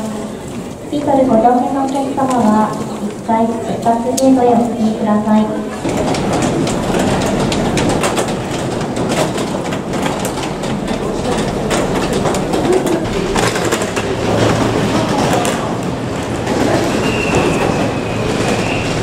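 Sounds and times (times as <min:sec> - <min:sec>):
suitcase wheels rattling on tiles: 0:05.8 - 0:19.0.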